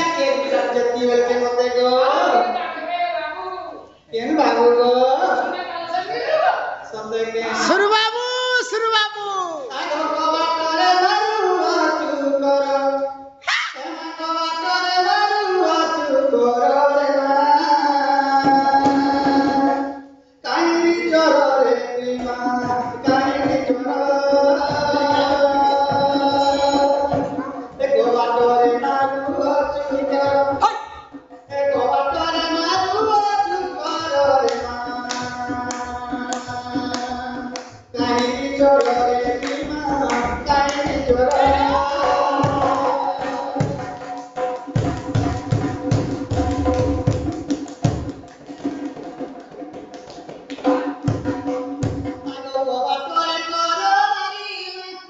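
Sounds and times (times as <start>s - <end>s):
man singing into microphone: 0.0s - 2.6s, 6.8s - 44.5s, 52.2s - 55.0s.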